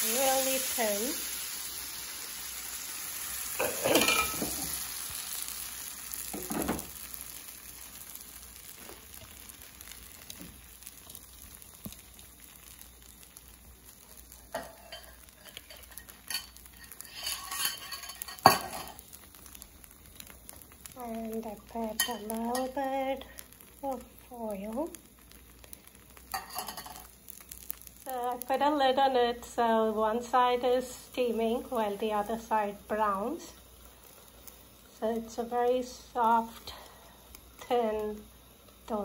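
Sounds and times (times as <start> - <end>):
batter sizzling on a pan: 0.0 - 39.0
utensils clinking against pan: 3.6 - 4.7, 14.5 - 19.0, 22.0 - 22.8, 26.3 - 27.0.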